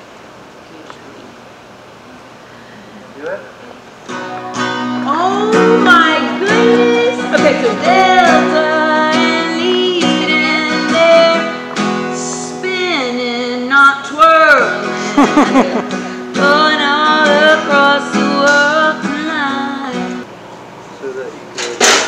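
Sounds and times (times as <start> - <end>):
guitar: 2.4 - 22.0
woman singing: 4.9 - 20.3.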